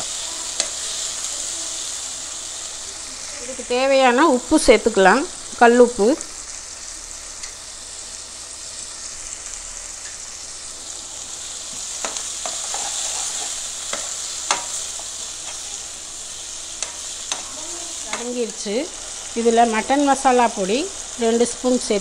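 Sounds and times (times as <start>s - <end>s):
vegetables sizzling in oil: 0.0s - 22.0s
spatula scraping a pan: 12.0s - 15.8s.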